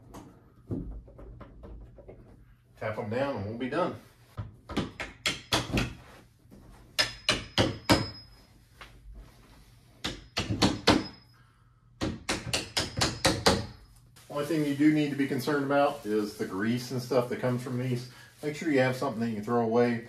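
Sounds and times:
hammer tapping steel hinge pins: 7.0 - 8.3
faint metallic ring: 7.2 - 8.7.

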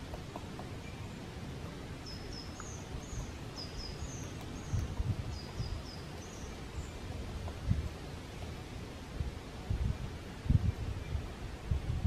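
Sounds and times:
songbird calling: 0.0 - 7.2
steady outdoor hiss: 0.0 - 12.0.

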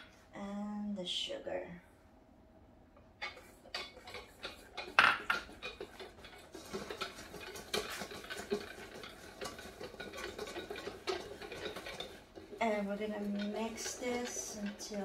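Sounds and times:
whisk beating in metal bowl: 3.2 - 15.0.

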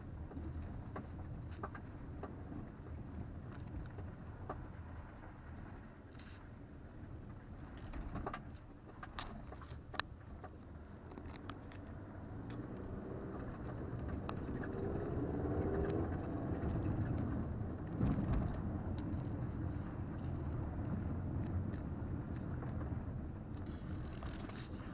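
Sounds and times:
tyre and suspension rumble: 0.0 - 24.9
car engine: 9.9 - 24.9.

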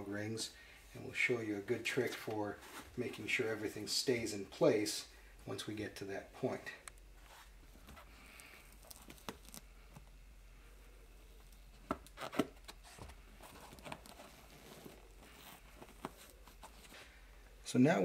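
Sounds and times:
fabric rustling: 12.2 - 17.2.

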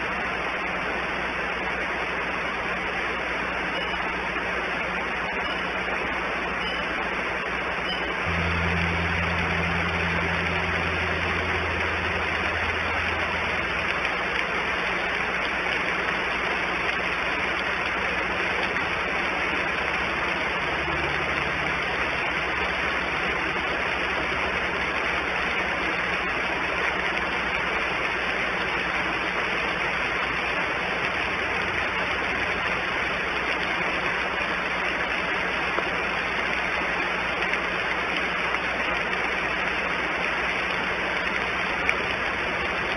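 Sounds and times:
outdoor background hiss: 0.0 - 42.9
low vehicle engine hum: 7.8 - 27.9.

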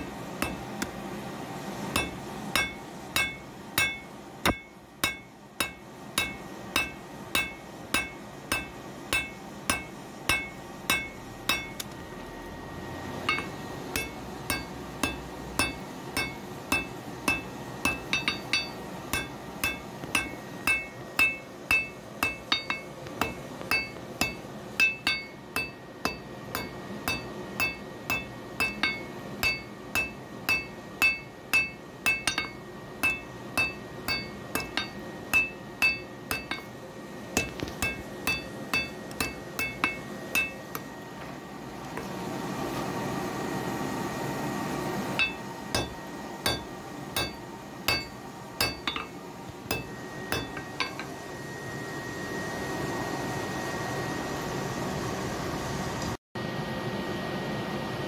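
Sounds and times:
hammer striking iron on anvil: 0.0 - 1.0, 1.9 - 12.0, 13.2 - 40.9, 45.2 - 51.2.

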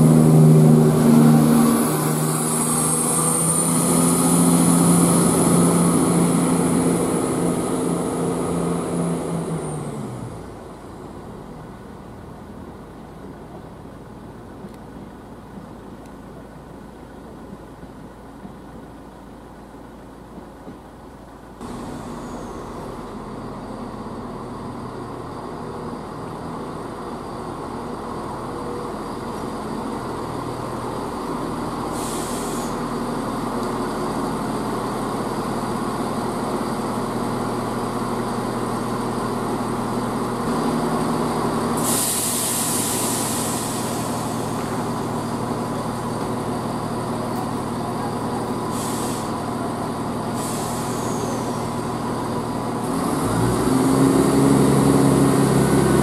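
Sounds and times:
diesel train engines running: 0.0 - 56.0
air brake hiss: 21.6 - 23.2, 31.9 - 32.9, 41.8 - 44.8, 48.6 - 49.5, 50.3 - 51.8.

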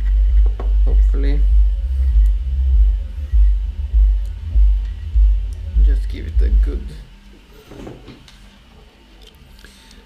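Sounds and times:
music with deep bass beat: 0.0 - 7.2.

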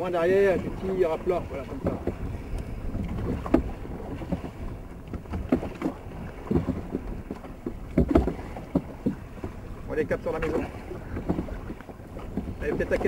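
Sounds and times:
oars knocking in rowlocks: 0.0 - 13.0
wind on microphone: 0.0 - 13.0.

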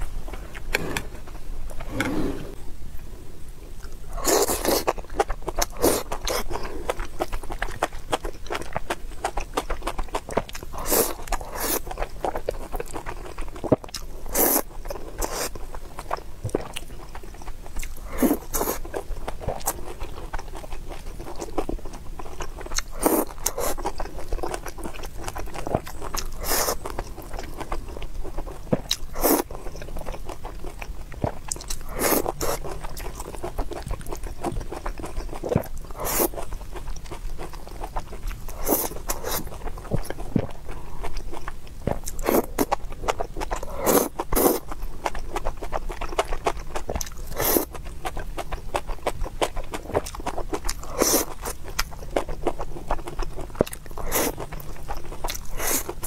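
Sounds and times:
person chewing food: 0.0 - 2.6, 3.8 - 56.0
slurping: 0.5 - 2.6.

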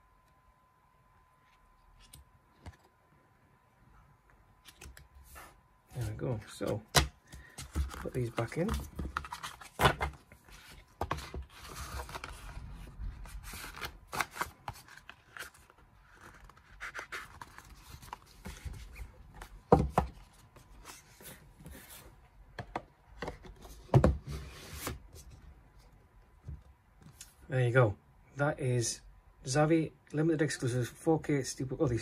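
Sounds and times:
paper and card rustling: 4.6 - 22.2.

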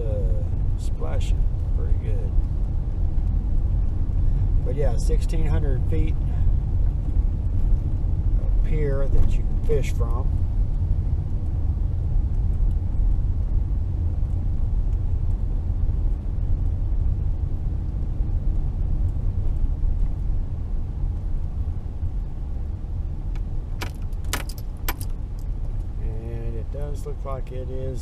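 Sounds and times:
car driving interior rumble: 0.0 - 28.0
sharp clicks: 23.3 - 25.2.

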